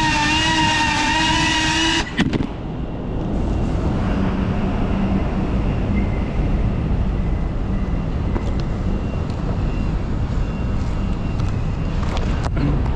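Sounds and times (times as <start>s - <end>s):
road traffic rumble: 0.0s - 12.9s.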